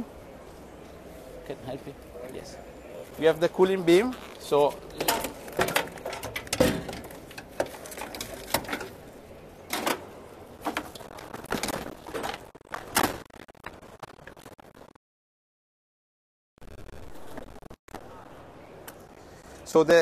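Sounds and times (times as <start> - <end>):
steady background noise: 0.0 - 14.9, 16.6 - 20.0
metal parts knocking and clunking: 5.0 - 9.0.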